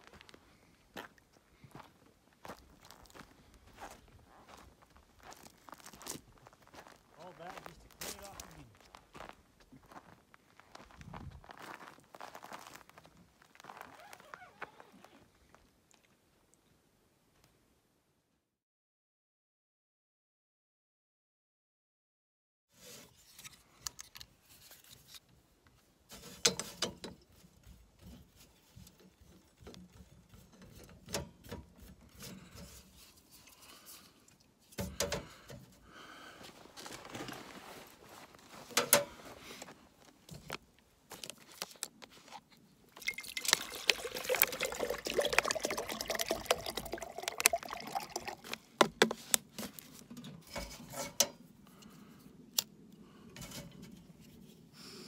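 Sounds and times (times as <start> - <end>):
water pouring into pot: 43.0 - 48.7.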